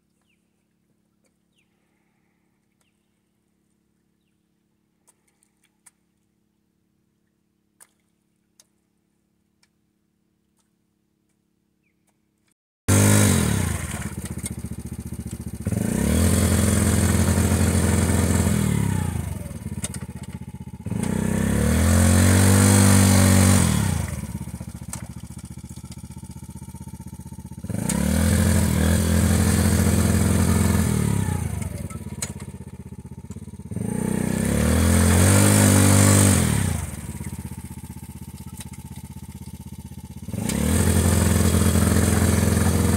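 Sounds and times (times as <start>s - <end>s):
small engine revving: 12.9s - 42.9s.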